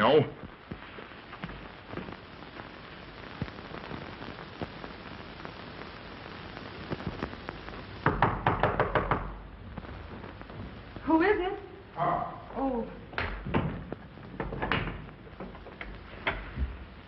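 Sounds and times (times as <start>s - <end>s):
film soundtrack hiss and crackle: 0.0s - 17.0s
sharp knocks or clicks: 8.0s - 9.4s.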